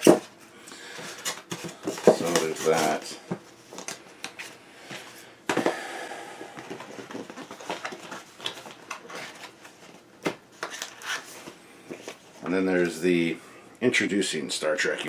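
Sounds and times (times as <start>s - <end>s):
cardboard and paper rustling: 1.0s - 4.6s, 6.8s - 12.9s.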